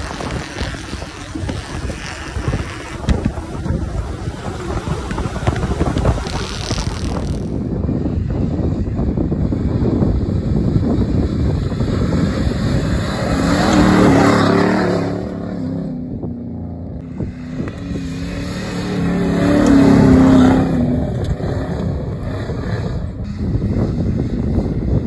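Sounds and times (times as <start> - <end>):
truck engines revving: 0.0 - 25.0
wind rumbling on microphone: 0.0 - 25.0.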